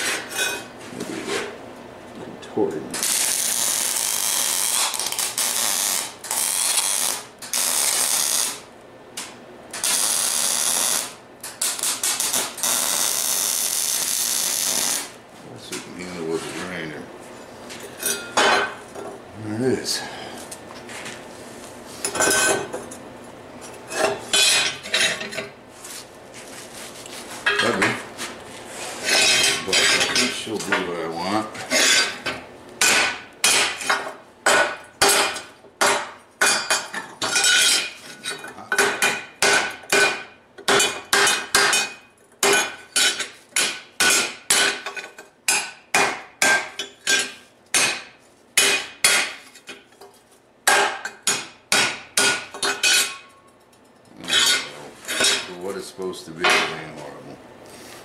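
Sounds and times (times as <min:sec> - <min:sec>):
metal clanks and scrapes: 0:00.0 - 0:01.6, 0:22.0 - 0:22.9, 0:23.8 - 0:25.5, 0:28.8 - 0:30.9, 0:31.6 - 0:32.4, 0:52.6 - 0:55.7.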